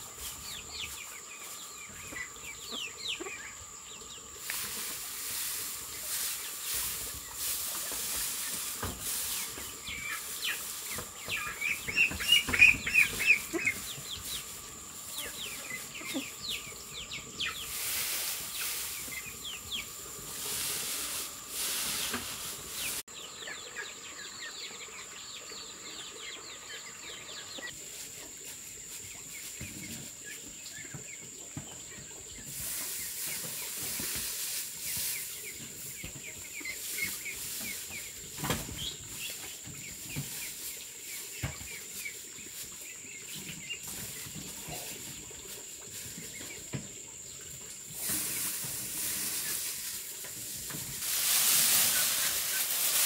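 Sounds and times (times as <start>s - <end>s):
birds chirping: 0.0s - 27.8s
high insect drone: 0.1s - 23.0s
hiss: 4.4s - 11.0s, 17.4s - 23.1s, 47.9s - 53.0s.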